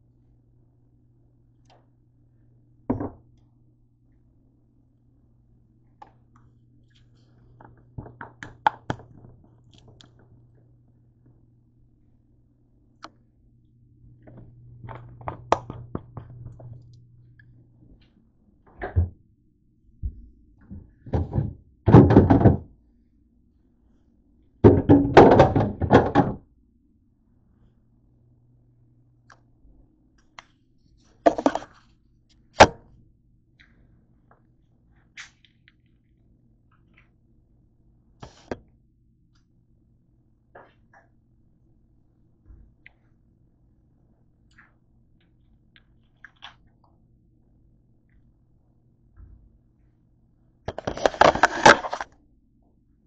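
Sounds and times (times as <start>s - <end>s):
low steady hum: 0.0s - 53.0s
items knocking in refrigerator: 20.7s - 22.8s, 24.6s - 26.4s, 31.3s - 31.7s.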